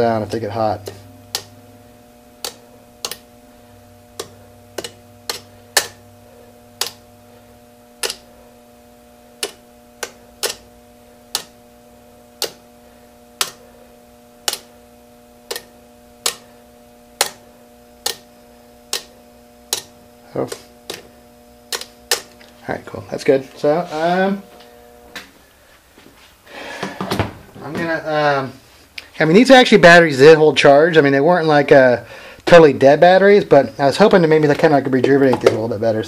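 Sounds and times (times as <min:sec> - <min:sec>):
faint steady hum: 0:00.0 - 0:36.0
electric spark clicks: 0:00.4 - 0:01.6, 0:02.4 - 0:06.1, 0:06.7 - 0:07.2, 0:07.8 - 0:12.7, 0:13.3 - 0:13.7, 0:14.4 - 0:14.8, 0:15.4 - 0:22.6.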